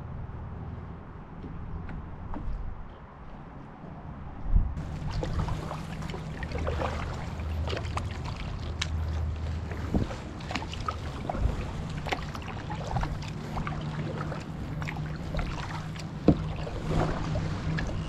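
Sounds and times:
steady low hum: 4.4 - 18.0
paddle splashing through water: 4.8 - 18.0.

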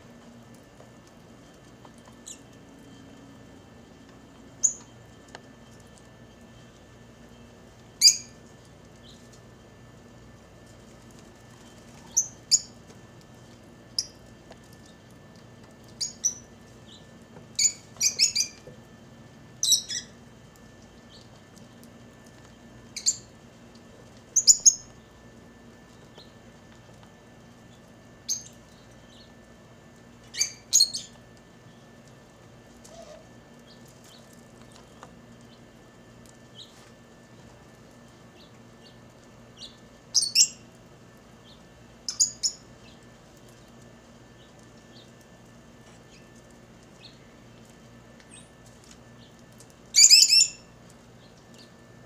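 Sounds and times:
faint steady hum: 0.0 - 52.0
lovebirds chirping: 15.8 - 18.6, 19.6 - 20.2, 30.3 - 31.8, 48.3 - 51.8.

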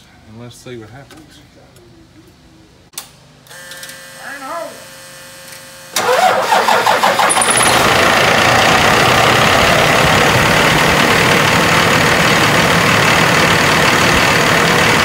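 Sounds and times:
diesel truck engine starting and idling: 6.0 - 15.0.

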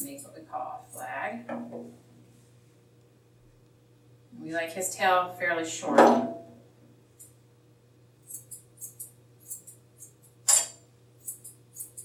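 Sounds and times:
scissors snipping hair: 8.3 - 10.4, 11.2 - 12.0.

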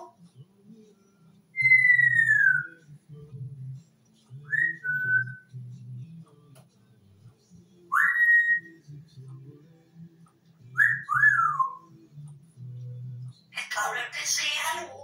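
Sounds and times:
parrot whistling: 1.6 - 2.8, 7.9 - 8.7, 10.8 - 11.8.

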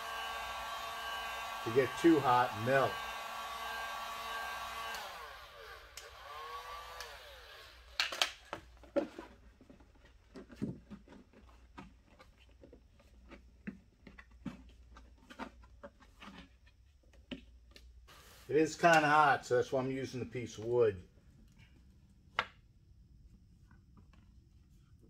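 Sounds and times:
heat gun fan whine winding down: 0.0 - 8.3
knocks and handling noises: 8.0 - 17.9.

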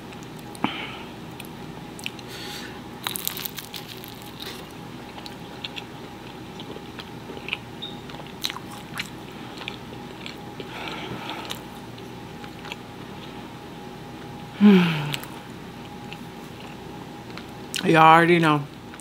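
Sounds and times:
person chewing crunchy food: 1.3 - 13.5, 15.0 - 17.8.

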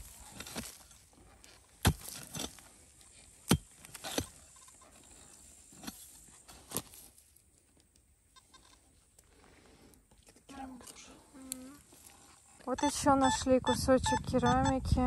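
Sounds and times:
pickaxe striking stony soil: 0.0 - 1.0, 1.8 - 2.7, 3.4 - 4.4, 5.7 - 7.0.

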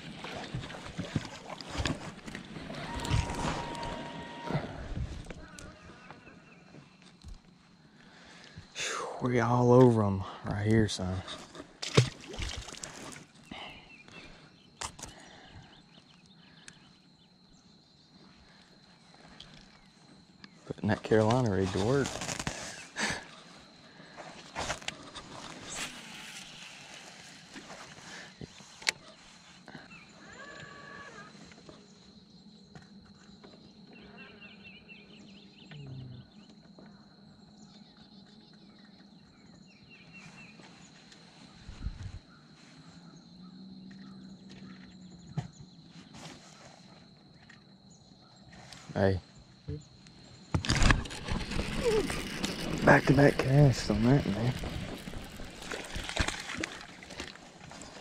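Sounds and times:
faint birdsong chirping: 0.2 - 11.8, 12.6 - 58.0
high insect drone: 12.2 - 58.0
fishing tackle rustling and ticking: 50.6 - 58.0.

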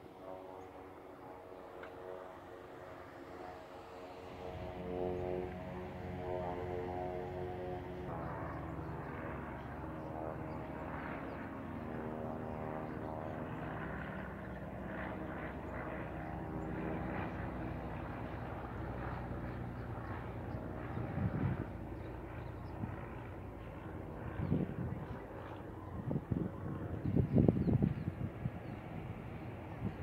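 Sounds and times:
propeller plane engine drone: 0.0 - 30.0.

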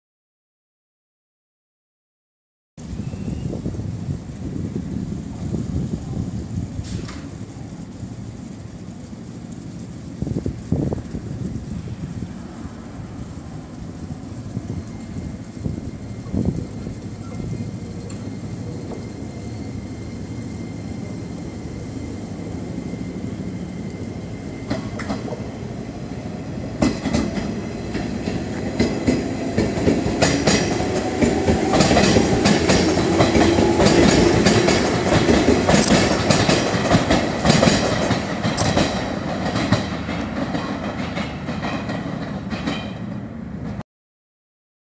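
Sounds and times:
electric train rumbling: 2.8 - 43.8
train motor whine: 2.9 - 39.4
train wheels clacking over rail joints: 6.8 - 7.4, 24.6 - 25.5, 26.7 - 43.8.

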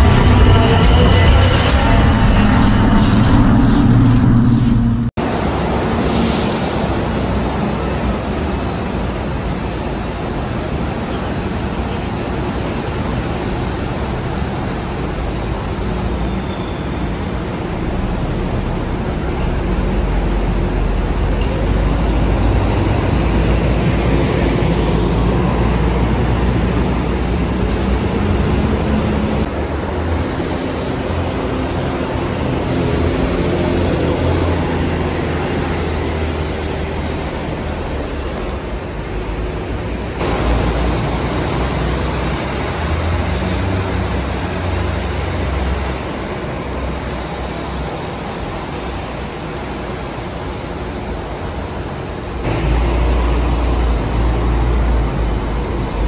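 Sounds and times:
bus diesel engine rumble: 0.0 - 5.4, 17.0 - 56.0
bus moving past: 0.0 - 56.0.

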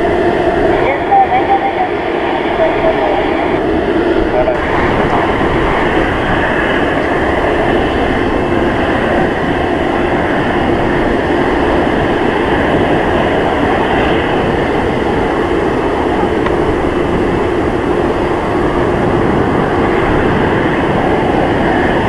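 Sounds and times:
jet engines running: 0.0 - 22.0.

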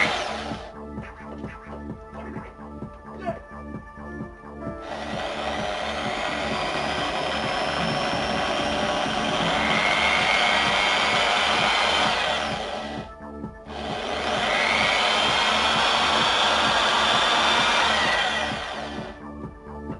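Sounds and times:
electric drill boring into coconut: 0.0 - 0.7, 4.8 - 13.1, 13.7 - 19.2.

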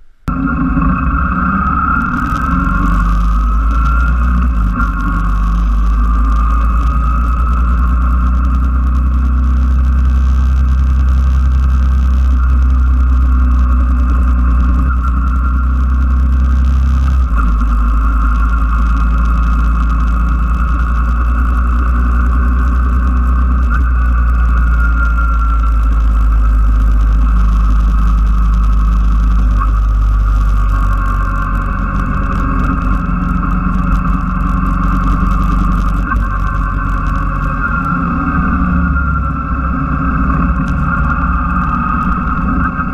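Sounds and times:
motorcycle engine running: 0.0 - 42.9.

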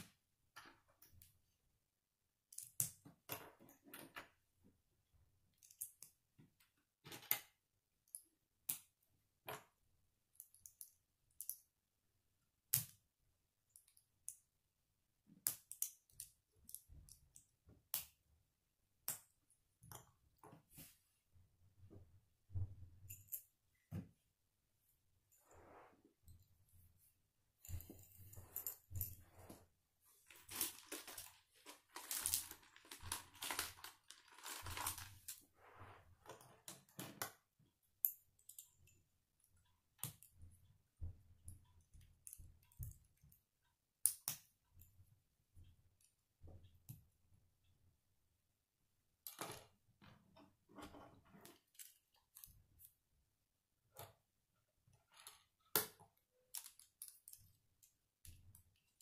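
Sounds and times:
plastic parts rattling: 30.3 - 35.4.

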